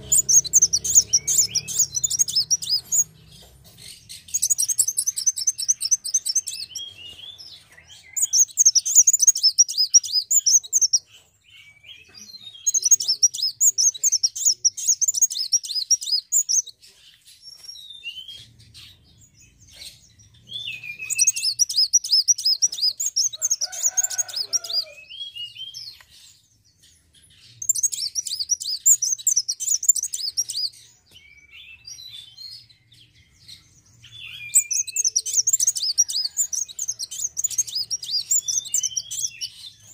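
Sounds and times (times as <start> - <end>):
thin bird calls: 0.0 - 19.1, 19.7 - 32.3, 33.5 - 39.9
sunbird twittering song: 0.0 - 39.9.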